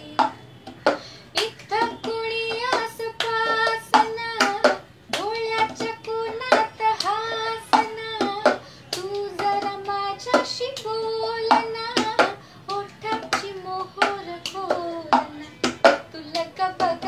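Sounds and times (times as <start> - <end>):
hand claps: 0.0 - 17.0
woman singing: 0.0 - 17.0
plastic cup knocking on wooden table: 15.1 - 16.0.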